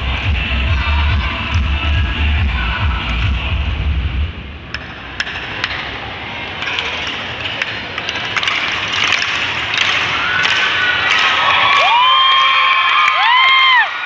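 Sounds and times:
dance music with heavy beat: 0:00.0 - 0:04.2
crowd noise: 0:00.0 - 0:14.0
crowd cheering: 0:10.0 - 0:14.0.

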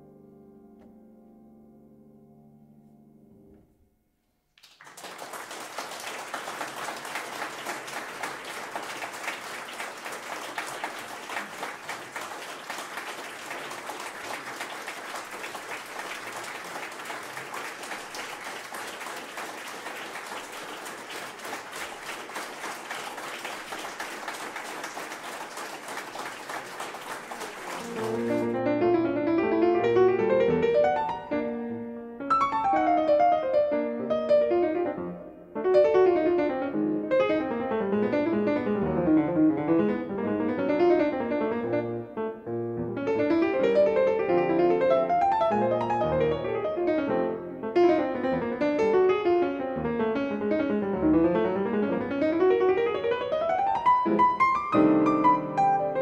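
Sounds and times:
audience applauding: 0:04.6 - 0:28.7, 0:43.6 - 0:46.6
grand piano playing: 0:27.7 - 0:56.0.

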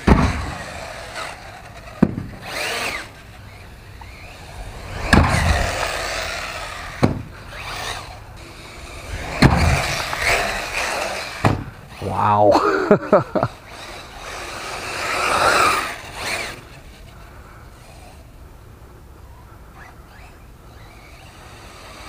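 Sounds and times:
electric motor whining: 0:00.4 - 0:12.4.

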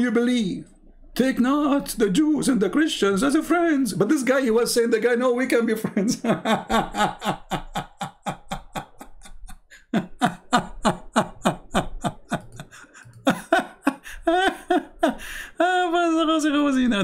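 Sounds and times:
man laughing hard: 0:06.0 - 0:16.0.

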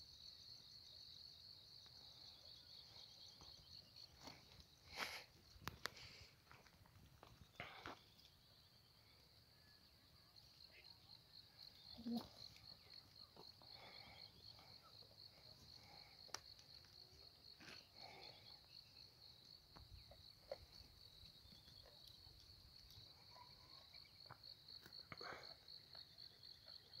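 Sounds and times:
crickets chirping: 0:00.0 - 0:27.0.

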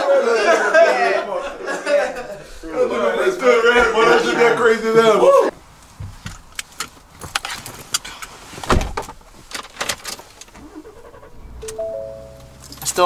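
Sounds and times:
rustle of movement: 0:05.6 - 0:11.3.

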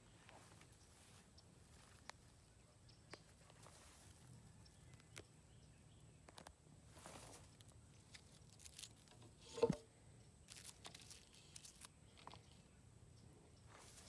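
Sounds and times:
handling rustles and clicks: 0:06.2 - 0:09.9, 0:10.5 - 0:12.6.

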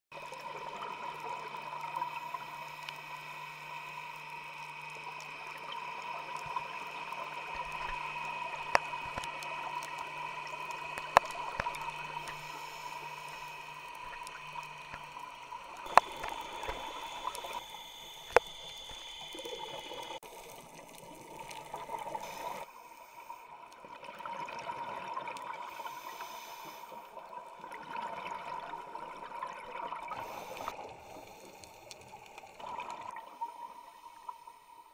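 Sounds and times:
regulator bubbles gurgling: 0:00.1 - 0:22.7, 0:23.4 - 0:26.1, 0:26.9 - 0:34.9
faint thin whine: 0:00.2 - 0:23.8, 0:25.4 - 0:34.9
steady underwater hiss: 0:00.2 - 0:34.9
sharp clicks: 0:08.6 - 0:20.2.

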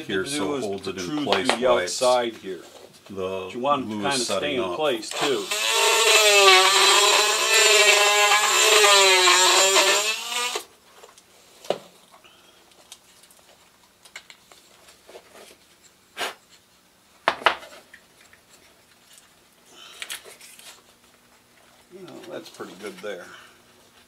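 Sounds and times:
rotary tool whining: 0:05.1 - 0:10.7.

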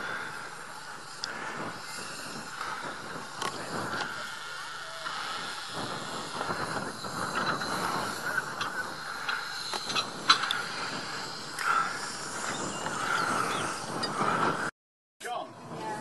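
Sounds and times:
steam locomotive hissing: 0:00.0 - 0:14.7.

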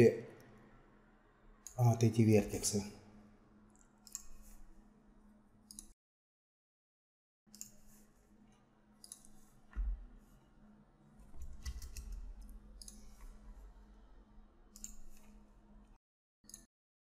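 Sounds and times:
low steady hum: 0:07.6 - 0:16.0.

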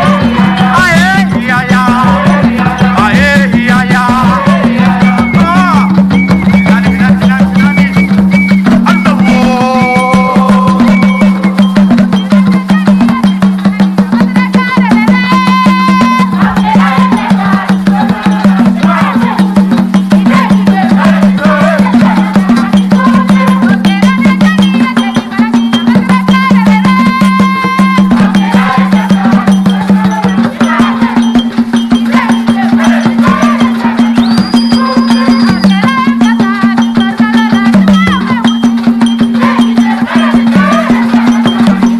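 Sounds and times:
fast drumming on wooden drums: 0:00.0 - 0:41.9
high wavering calls: 0:04.0 - 0:12.3, 0:27.8 - 0:35.9.

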